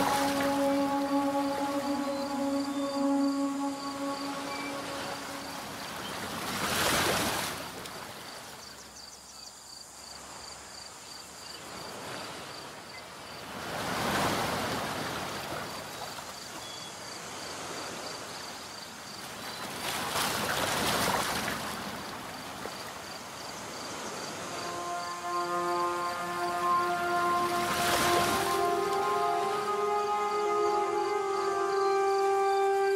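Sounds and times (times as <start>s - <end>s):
background music: 0.0s - 6.0s, 24.4s - 32.9s
surf waves washing in: 0.0s - 8.3s, 13.4s - 16.3s, 19.2s - 32.9s.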